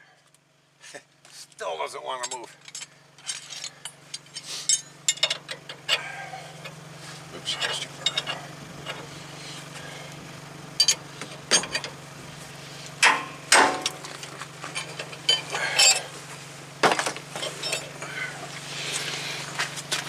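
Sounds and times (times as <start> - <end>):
steady low hum: 0.0 - 20.0
metal clinks and pops: 2.2 - 6.0, 10.7 - 12.0, 13.0 - 16.1.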